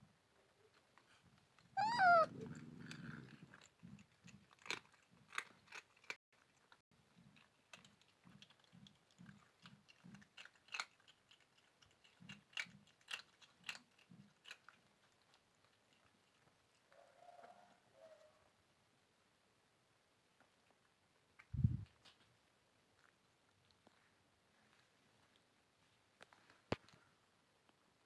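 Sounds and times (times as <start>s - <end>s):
cats crunching and chewing snack: 0.2s - 17.9s, 20.4s - 28.0s
cat meowing: 1.8s - 2.6s.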